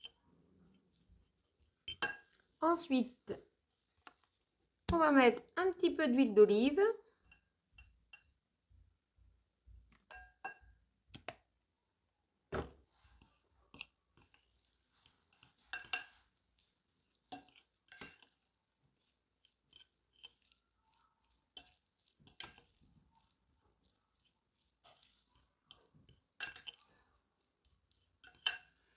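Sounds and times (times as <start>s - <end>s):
fork clinking against glass bowl: 1.9s - 2.4s, 10.1s - 10.7s, 15.3s - 16.2s, 17.3s - 20.6s, 21.2s - 23.0s, 24.2s - 27.0s, 27.9s - 28.9s.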